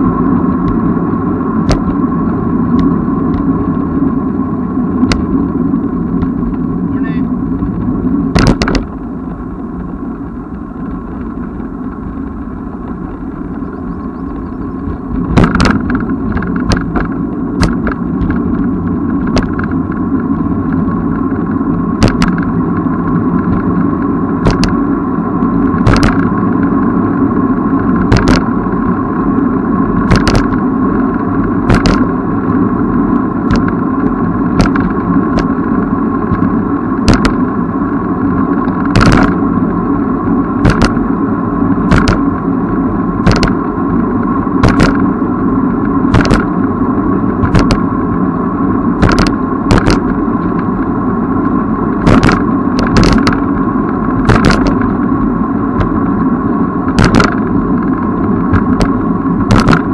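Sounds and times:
wind and road noise: 0.0s - 59.9s
bicycle knocks and rattles: 1.6s - 2.1s, 6.1s - 6.7s, 7.5s - 9.0s, 14.2s - 24.9s, 25.5s - 26.8s, 27.9s - 28.6s, 30.0s - 30.6s, 31.6s - 32.6s, 33.4s - 35.6s, 36.3s - 37.5s, 38.5s - 39.4s, 40.6s - 41.1s, 41.9s - 42.5s, 43.2s - 44.0s, 44.6s - 45.1s, 45.8s - 46.6s, 47.4s - 47.9s, 49.0s - 50.6s, 52.0s - 53.5s, 54.1s - 55.1s, 55.8s - 56.0s, 56.9s - 57.9s, 58.5s - 59.9s.

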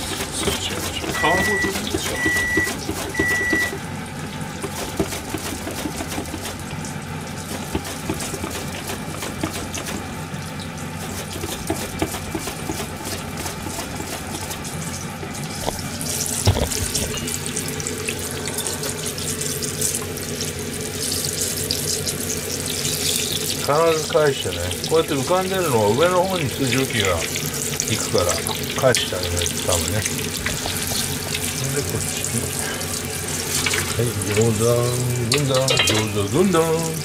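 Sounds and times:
oil sizzling and crackling: 0.0s - 37.0s
short electronic beeps: 1.1s - 3.8s.

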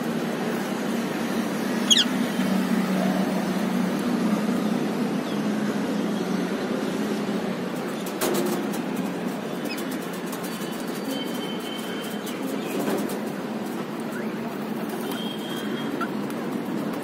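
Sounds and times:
parakeet call: 1.8s - 2.2s.

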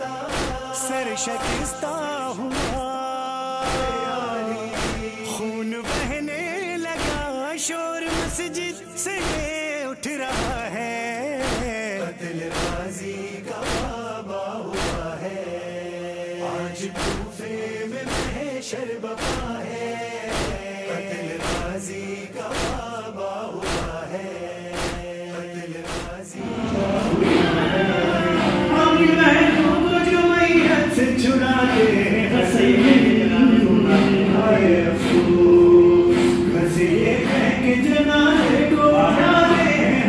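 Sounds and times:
chorus of men's voices: 0.0s - 40.0s
man reciting a lament: 0.0s - 40.0s
steady beat: 1.4s - 1.8s, 3.7s - 3.9s, 4.8s - 5.1s, 5.9s - 6.2s, 7.0s - 7.3s, 8.1s - 8.5s, 9.2s - 9.5s, 12.5s - 12.9s, 17.0s - 17.3s, 25.9s - 40.0s.

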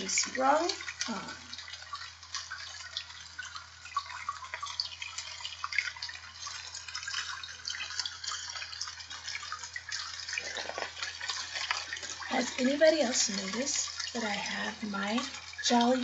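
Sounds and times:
low steady hum: 0.0s - 16.0s
rain dripping: 0.0s - 16.0s.

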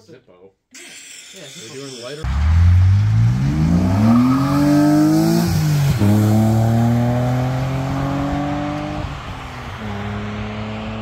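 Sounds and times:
car accelerating hard past: 2.3s - 11.0s.

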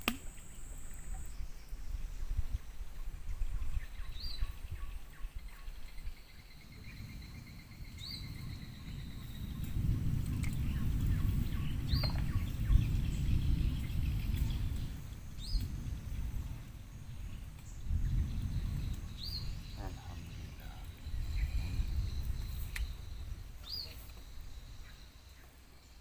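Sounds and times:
birds calling: 0.0s - 26.0s
low rumble: 5.8s - 25.1s.

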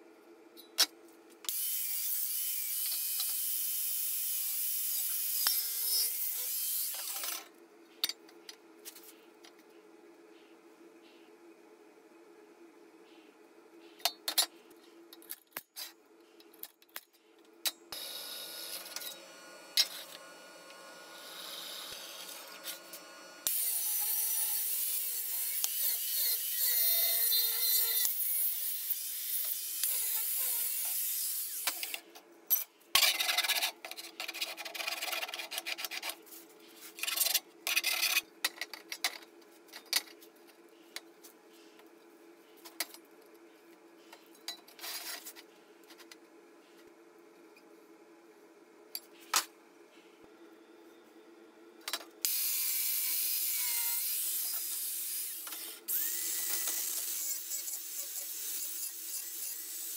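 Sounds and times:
angle grinder cutting steel: 1.5s - 7.3s, 18.0s - 31.9s, 52.3s - 59.9s.

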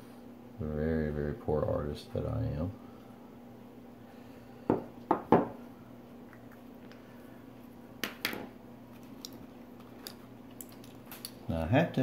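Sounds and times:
objects knocking on wooden table: 4.7s - 5.6s.

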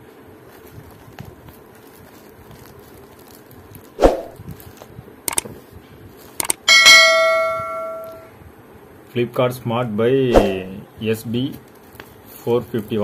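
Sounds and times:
clicks: 5.3s - 5.5s, 6.4s - 6.6s
electronic bell chime: 6.7s - 8.3s.

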